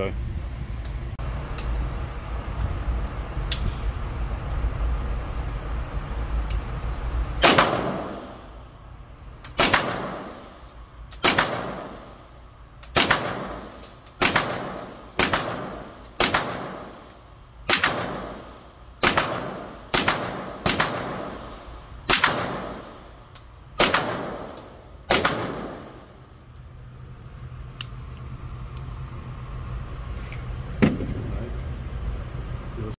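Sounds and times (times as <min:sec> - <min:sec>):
steady low hum: 0:00.0 - 0:33.0
suppressed gunshots echoing indoors: 0:07.4 - 0:08.7, 0:09.5 - 0:12.3, 0:12.9 - 0:26.3.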